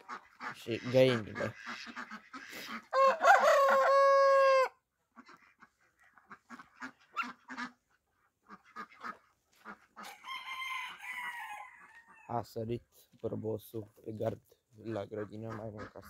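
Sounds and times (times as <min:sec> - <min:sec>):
rooster crowing: 0:02.9 - 0:04.8, 0:10.0 - 0:12.3.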